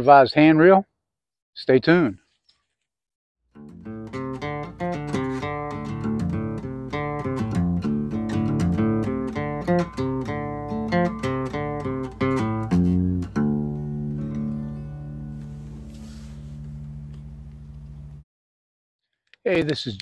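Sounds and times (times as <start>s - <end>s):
acoustic guitar plucking: 3.5s - 18.1s
guitar chord ringing: 3.6s - 17.7s.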